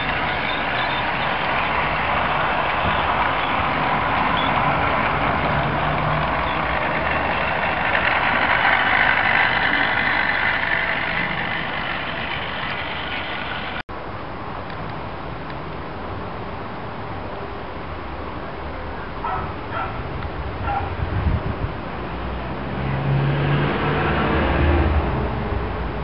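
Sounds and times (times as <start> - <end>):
model train whirring and rattling: 0.0 - 13.8.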